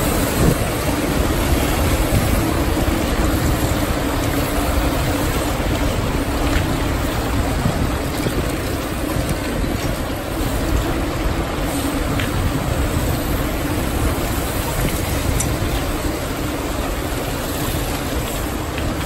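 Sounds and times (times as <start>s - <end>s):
bikes rolling over cobblestones: 0.0s - 19.0s.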